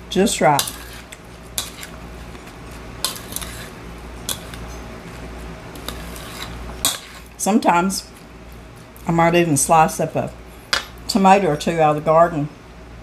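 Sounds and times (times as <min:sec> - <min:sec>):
utensil scraping ceramic bowl: 0:00.4 - 0:04.8, 0:05.8 - 0:07.4.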